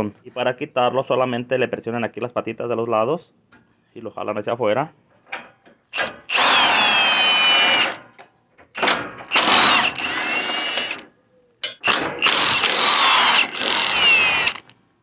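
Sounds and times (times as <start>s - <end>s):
power tool motor whine: 6.3s - 8.0s, 9.3s - 11.0s, 11.9s - 14.7s.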